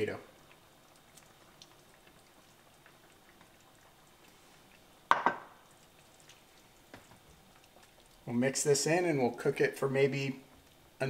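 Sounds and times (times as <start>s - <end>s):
spatula stirring in a skillet: 0.3s - 9.4s
kitchenware clank: 5.1s - 5.4s.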